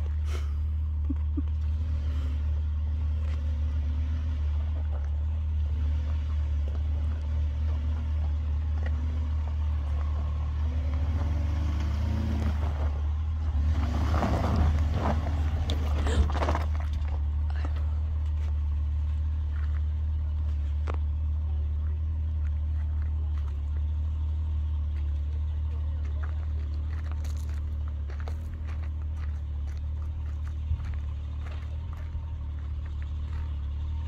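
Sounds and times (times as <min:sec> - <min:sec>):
pickup truck engine droning: 0:00.0 - 0:34.0.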